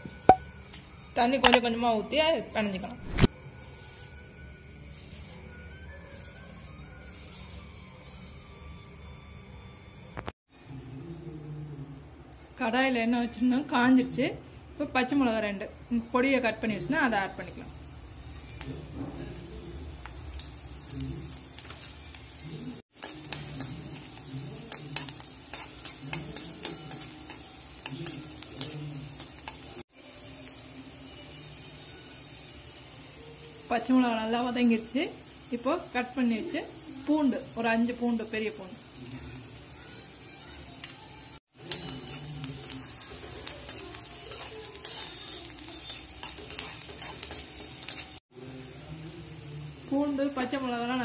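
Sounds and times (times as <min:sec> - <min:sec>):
chillies sizzling in hot oil: 0:00.0 - 0:10.4, 0:13.3 - 0:51.0
spatula scraping and tapping pan: 0:22.9 - 0:29.7, 0:41.6 - 0:48.2.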